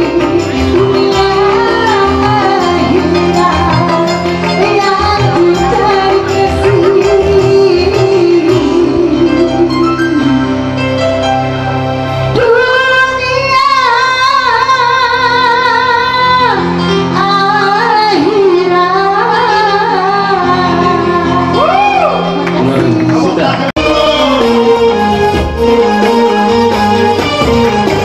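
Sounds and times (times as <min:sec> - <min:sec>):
woman singing with vibrato: 0:00.0 - 0:10.7, 0:12.3 - 0:21.9
keyboard accompaniment: 0:00.0 - 0:28.0.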